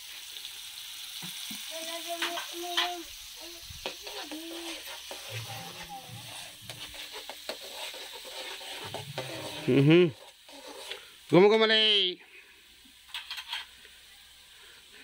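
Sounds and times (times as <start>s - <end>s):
curry sizzling in a pan: 0.0s - 15.0s
spoon scraping a pan: 2.1s - 3.0s, 3.8s - 11.3s, 13.0s - 13.9s.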